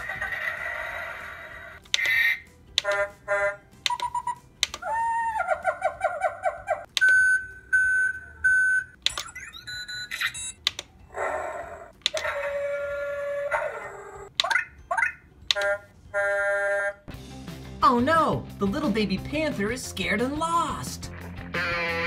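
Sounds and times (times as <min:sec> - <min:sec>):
toy electronic beeps: 0:02.0 - 0:04.9, 0:07.0 - 0:10.6, 0:14.4 - 0:17.0.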